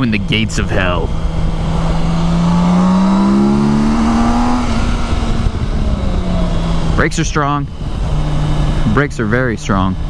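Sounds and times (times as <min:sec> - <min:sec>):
motorcycle engine accelerating: 0:00.0 - 0:10.0
wind noise: 0:00.0 - 0:10.0.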